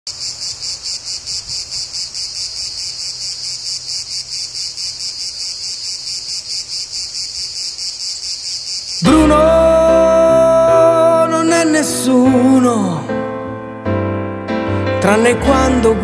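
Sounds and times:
insects chirping: 0:00.1 - 0:12.7.

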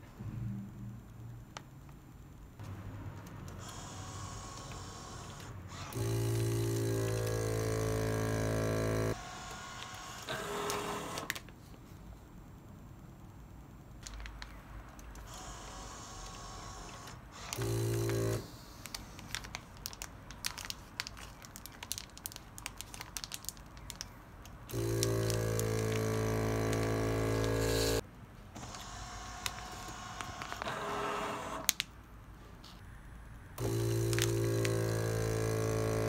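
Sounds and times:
vacuum sealer pump humming: 0:03.6 - 0:11.4, 0:15.2 - 0:20.0, 0:24.6 - 0:28.0, 0:28.6 - 0:31.8, 0:33.6 - 0:36.0
plastic bags crinkling: 0:14.0 - 0:15.2, 0:17.5 - 0:27.6, 0:34.0 - 0:34.9.

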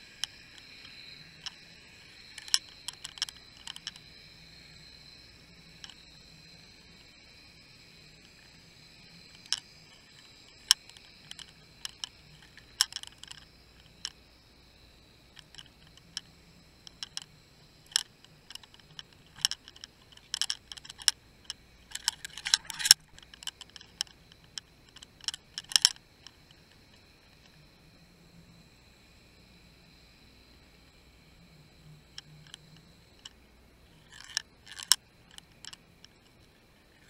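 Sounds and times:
faint high-pitched whine: 0:00.0 - 0:37.0
underwater sharp clicks: 0:00.2 - 0:04.1, 0:09.3 - 0:14.2, 0:16.9 - 0:17.3, 0:17.9 - 0:27.5.

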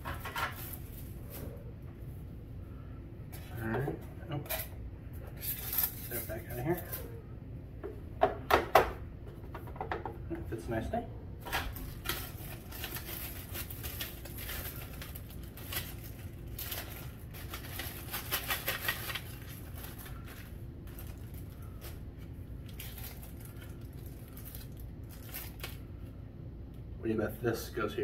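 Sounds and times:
plastic packaging crinkling: 0:11.7 - 0:25.9.

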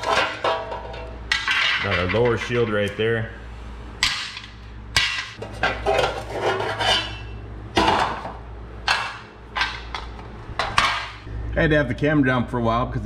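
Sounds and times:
sheet metal clanking: 0:00.0 - 0:02.8, 0:04.0 - 0:11.3
low hum: 0:00.0 - 0:13.0.

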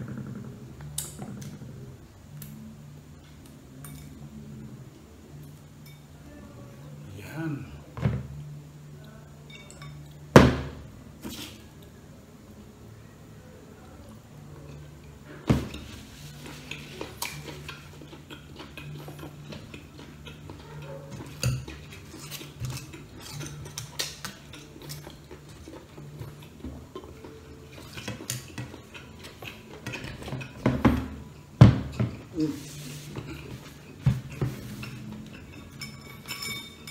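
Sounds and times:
tableware clinking: 0:09.4 - 0:10.2, 0:33.2 - 0:36.9.

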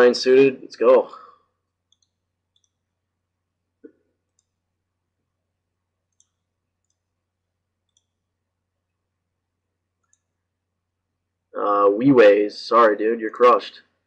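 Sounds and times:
computer mouse clicks: 0:01.8 - 0:02.9, 0:03.8 - 0:04.6, 0:06.1 - 0:07.2, 0:07.8 - 0:08.2, 0:10.0 - 0:10.4.

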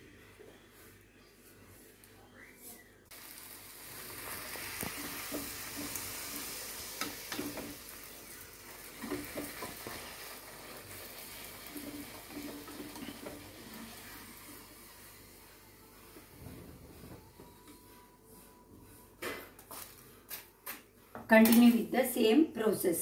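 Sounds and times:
dough sizzling in hot oil: 0:03.1 - 0:15.7.

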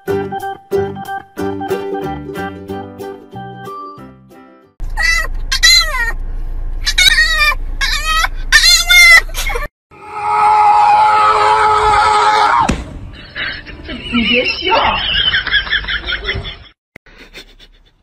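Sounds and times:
dog howling: 0:10.0 - 0:12.6.

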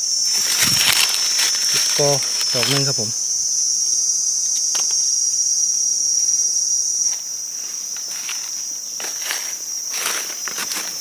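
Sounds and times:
clicks and rustles in dry leaves: 0:00.0 - 0:03.1, 0:07.6 - 0:11.0
high-pitched insect chorus: 0:00.0 - 0:11.0.

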